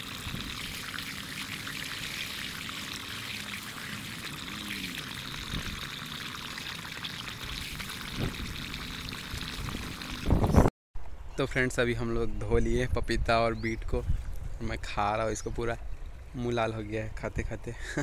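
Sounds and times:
water pouring: 0.0s - 10.7s.

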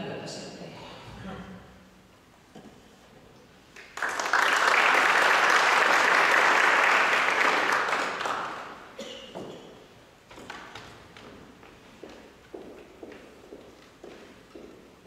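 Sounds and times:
audience applauding: 3.8s - 8.9s.

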